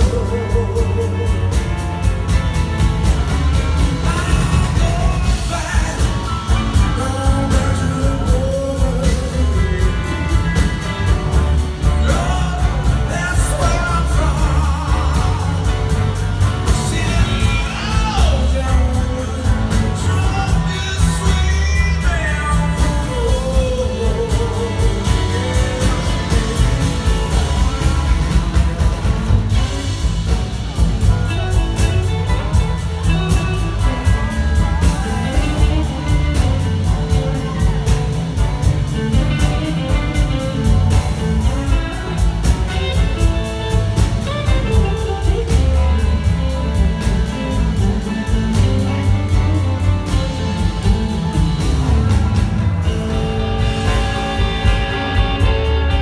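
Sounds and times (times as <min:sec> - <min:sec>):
bass guitar: 0:00.0 - 0:56.0
drums: 0:00.0 - 0:56.0
electric guitars: 0:00.0 - 0:56.0
person singing: 0:00.0 - 0:56.0.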